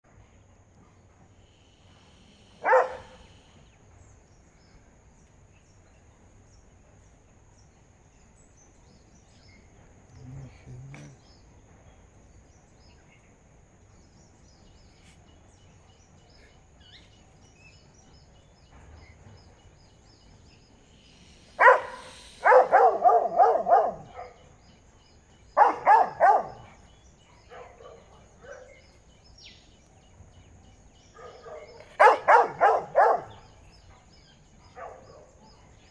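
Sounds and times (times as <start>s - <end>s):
dogs barking: 2.6s - 3.3s, 21.6s - 24.6s, 25.5s - 28.9s, 31.1s - 35.6s.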